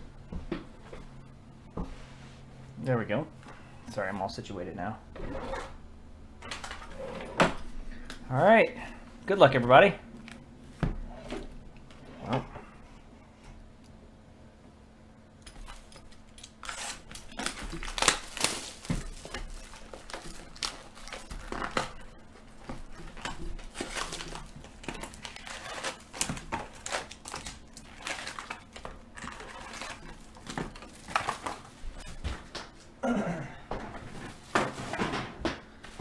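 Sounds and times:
cardboard box and foil rustling: 0:15.6 - 0:32.2
plastic shrink wrap crinkling: 0:15.8 - 0:32.2.

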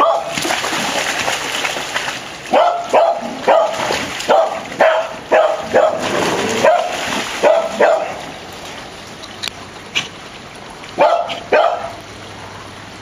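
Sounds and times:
dog barking: 0:00.0 - 0:00.4, 0:02.5 - 0:08.2, 0:11.0 - 0:12.0.

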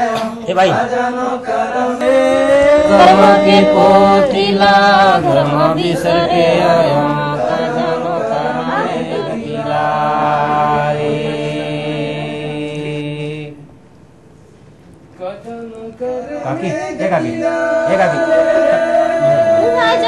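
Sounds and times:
men singing unaccompanied: 0:00.0 - 0:13.8, 0:15.2 - 0:20.0.

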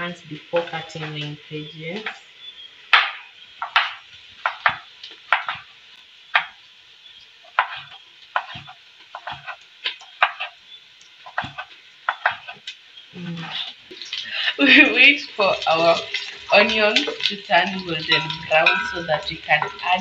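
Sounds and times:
knife chopping on wooden board: 0:03.0 - 0:05.6, 0:07.6 - 0:09.6, 0:10.2 - 0:10.5, 0:11.3 - 0:12.6.

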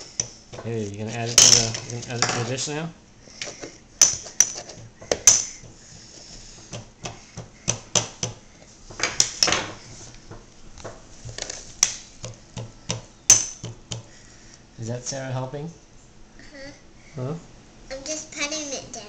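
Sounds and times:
knife chopping on plastic board: 0:06.6 - 0:08.4, 0:12.2 - 0:14.1.

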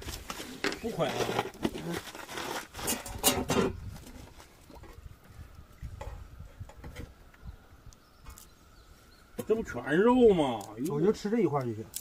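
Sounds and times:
wind rumble on microphone: 0:02.9 - 0:08.8.

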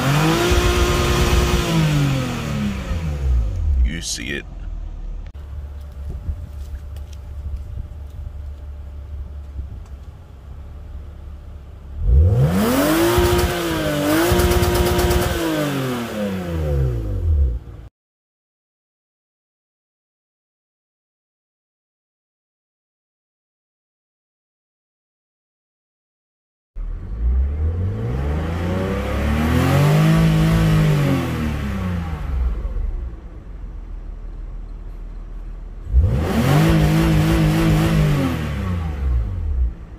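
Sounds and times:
car engine revving: 0:00.0 - 0:05.6, 0:10.8 - 0:17.9, 0:26.8 - 0:34.0, 0:35.8 - 0:39.9.

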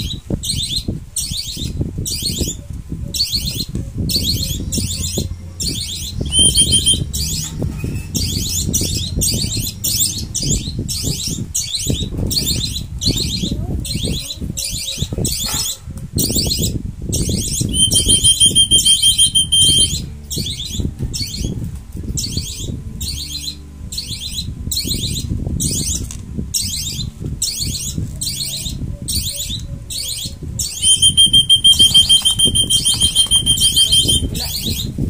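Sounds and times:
young birds begging chirps: 0:00.0 - 0:35.0
shrill whistle: 0:05.8 - 0:09.5, 0:17.7 - 0:20.0, 0:30.6 - 0:34.6.

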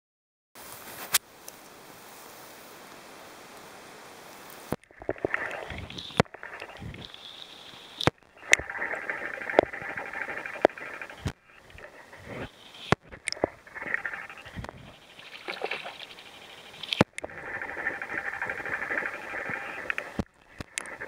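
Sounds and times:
underwater crackling hiss: 0:04.4 - 0:21.0
splash on water surface: 0:08.0 - 0:21.0.

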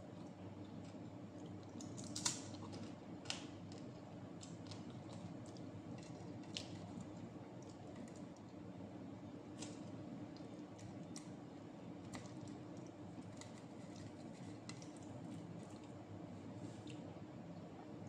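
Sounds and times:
low steady hum: 0:00.0 - 0:18.0
chewing clicks and smacks: 0:03.7 - 0:08.6.

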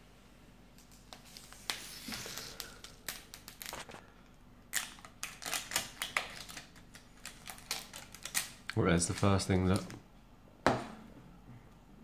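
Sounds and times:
plastic wrapping crinkling: 0:00.8 - 0:04.1, 0:04.7 - 0:10.0.

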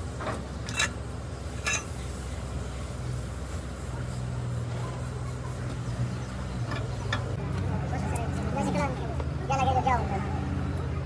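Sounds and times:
wrench clinking on wheel nuts: 0:00.6 - 0:01.0, 0:01.6 - 0:02.0.

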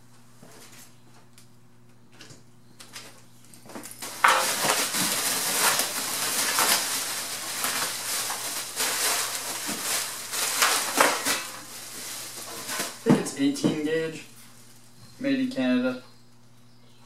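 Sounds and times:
bubble wrap crinkling: 0:03.8 - 0:15.0.

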